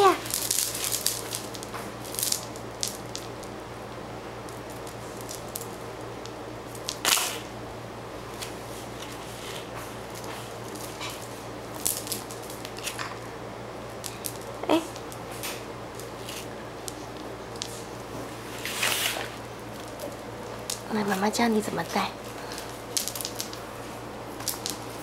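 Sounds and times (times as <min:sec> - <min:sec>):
plastic beads clattering: 0:00.0 - 0:03.5, 0:04.4 - 0:07.5, 0:10.1 - 0:13.2, 0:13.9 - 0:17.8, 0:18.5 - 0:23.6, 0:24.3 - 0:25.0
plastic beads clicking and rattling: 0:00.0 - 0:03.5, 0:04.4 - 0:07.5, 0:10.2 - 0:13.1, 0:13.9 - 0:17.8, 0:19.3 - 0:21.6, 0:22.5 - 0:23.6, 0:24.4 - 0:25.0
steady low hum: 0:00.0 - 0:25.0.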